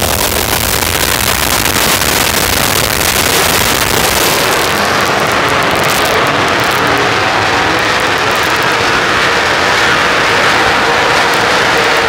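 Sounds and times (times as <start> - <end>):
race car engines at speed: 0.0 - 12.0.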